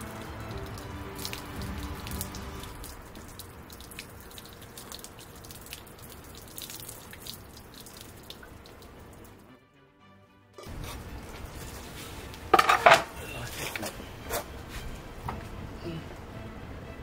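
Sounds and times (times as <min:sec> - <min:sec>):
sharp water drips: 0:00.0 - 0:09.5
water pouring and splashing: 0:00.0 - 0:09.5, 0:10.6 - 0:15.0.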